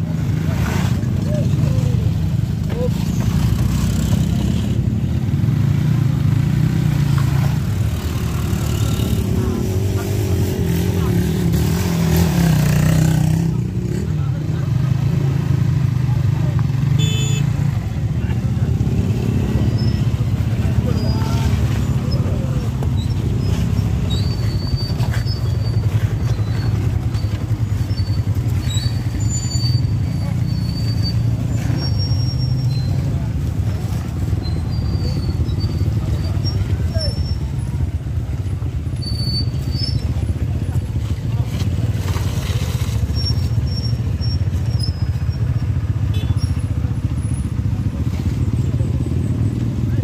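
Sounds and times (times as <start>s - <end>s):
diesel engine rumbling: 0.0s - 50.0s.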